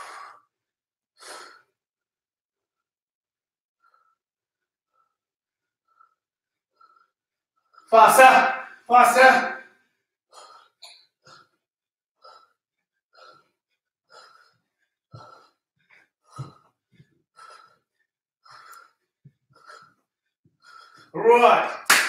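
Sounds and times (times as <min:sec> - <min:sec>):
man breathing hard: 0:00.0 - 0:00.6, 0:01.2 - 0:01.8, 0:03.8 - 0:07.9, 0:09.7 - 0:11.6, 0:12.2 - 0:21.2.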